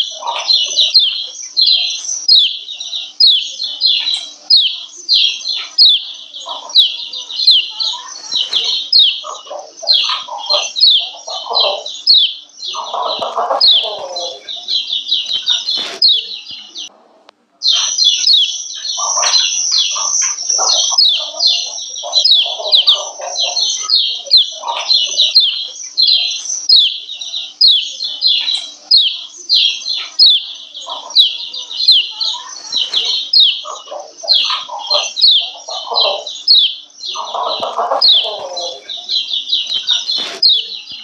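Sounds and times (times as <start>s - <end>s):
lower rougher bird calls: 17.6s - 40.9s.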